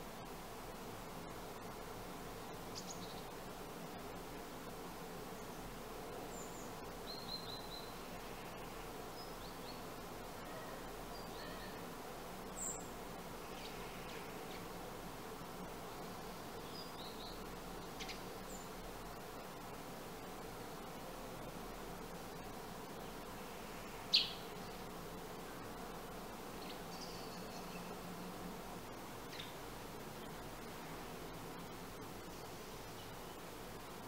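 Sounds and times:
steady hiss and low hum: 0.0s - 34.0s
sparrows chirping: 2.4s - 3.4s, 6.3s - 9.9s, 16.6s - 19.6s, 23.0s - 24.8s, 26.5s - 28.1s, 29.2s - 30.9s.

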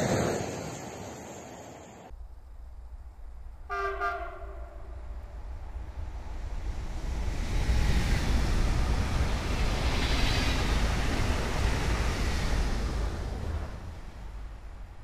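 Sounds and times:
train passing at speed: 0.0s - 15.0s.

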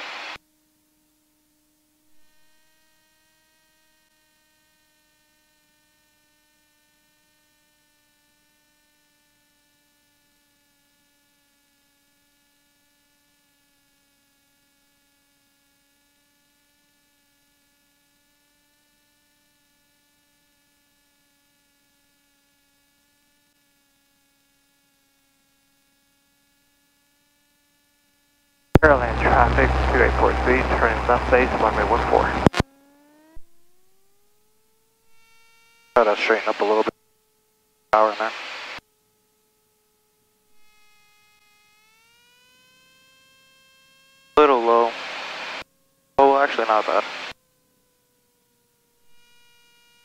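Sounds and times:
faint electrical hum: 28.8s - 32.6s.

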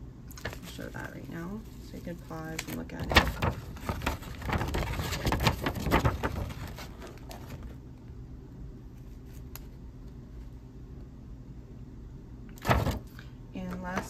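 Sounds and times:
low steady hum: 0.0s - 14.0s
paper sheet rustling: 0.3s - 7.8s, 12.6s - 13.2s.

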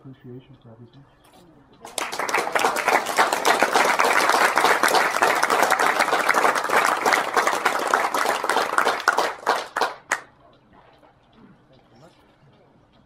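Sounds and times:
audience applauding: 1.9s - 10.2s.

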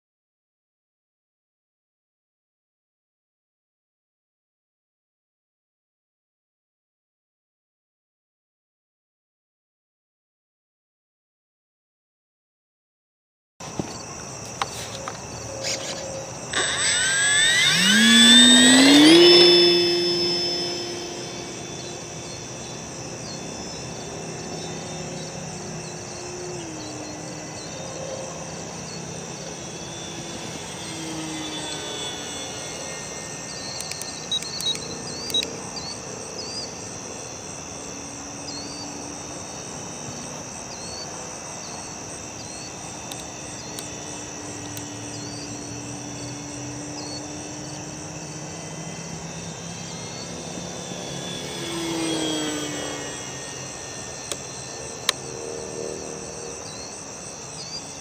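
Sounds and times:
crickets chirping: 13.6s - 58.0s
model plane motor whining: 13.6s - 58.0s.

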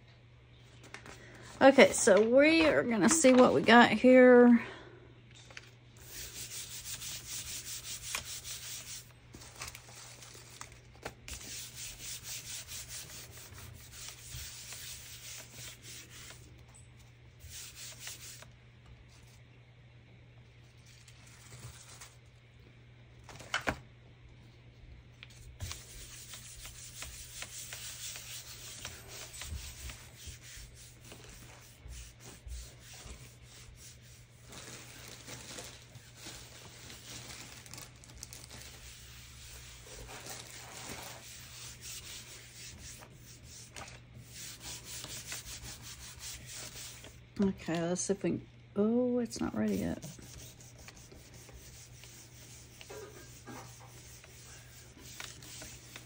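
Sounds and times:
paper rubbing on printing plate: 6.0s - 9.1s, 11.3s - 16.5s, 17.4s - 18.4s, 25.5s - 35.0s, 38.4s - 47.2s, 49.7s - 56.0s.

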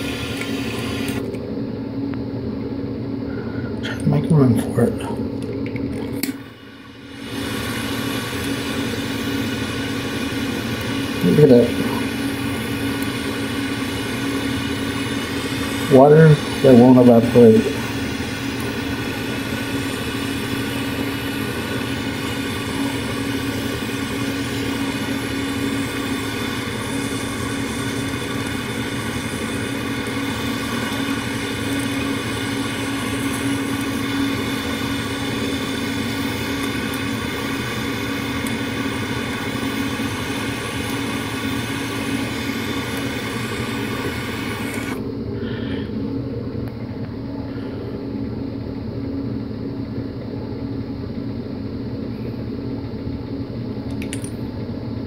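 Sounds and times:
butane torch hissing: 0.0s - 1.4s, 6.2s - 45.9s
low steady hum: 0.0s - 55.0s.

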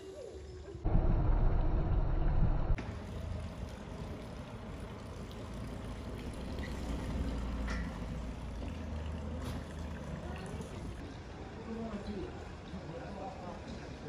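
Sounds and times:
steady low street rumble: 0.1s - 14.0s
loud low rumble: 0.8s - 2.8s.

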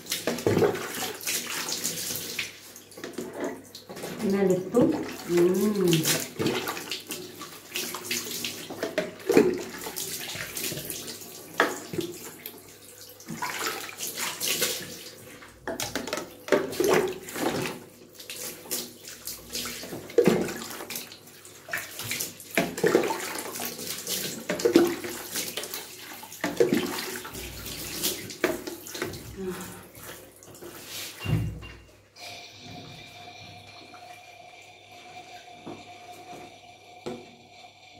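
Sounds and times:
water pouring and splashing: 0.0s - 34.2s.

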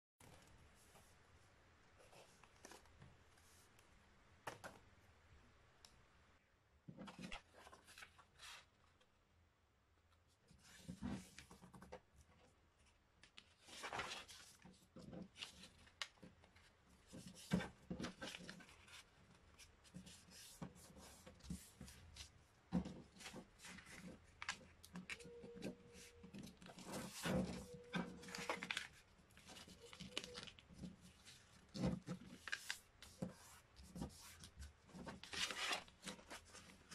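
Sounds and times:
paper rustling as folded: 7.0s - 9.0s, 12.8s - 36.9s.

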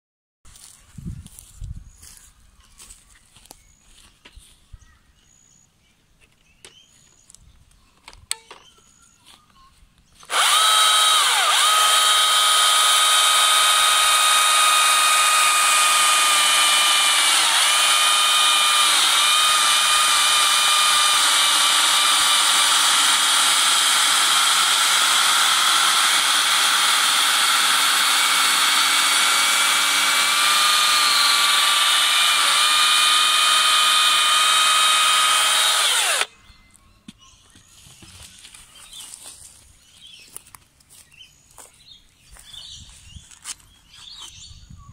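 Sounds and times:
electric chainsaw cutting wood: 10.2s - 36.3s.

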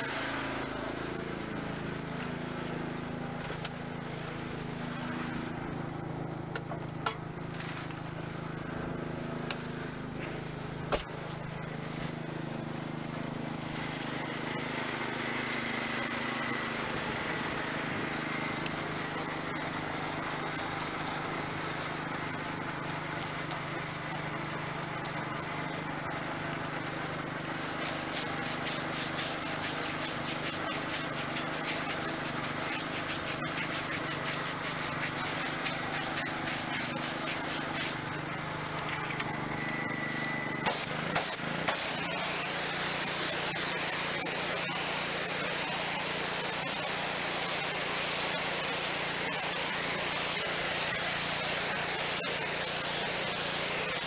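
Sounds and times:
steady motor hum: 0.0s - 54.0s
spraying hiss: 13.8s - 39.1s, 40.1s - 54.0s.

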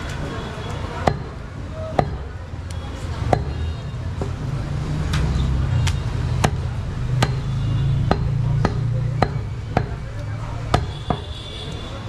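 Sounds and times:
knife chopping on wooden block: 8.1s - 10.0s, 10.7s - 11.3s.

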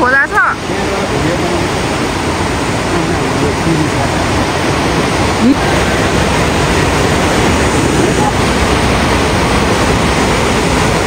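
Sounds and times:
large river rushing: 0.0s - 11.0s.

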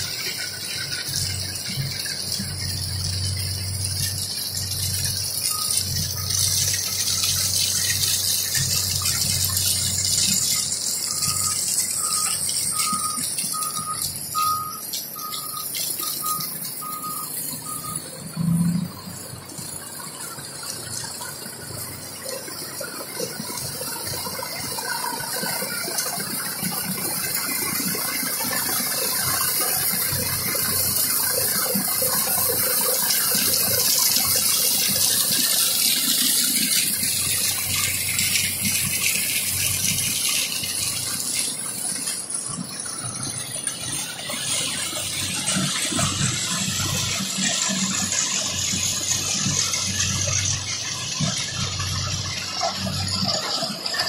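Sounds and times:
crushed stone pouring off conveyors: 0.0s - 54.0s
screening machine running: 22.9s - 54.0s.

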